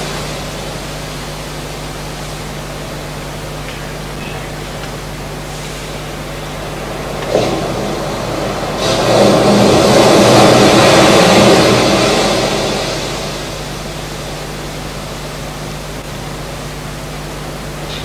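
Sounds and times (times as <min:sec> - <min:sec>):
sea wave breaking: 0:05.3 - 0:14.5.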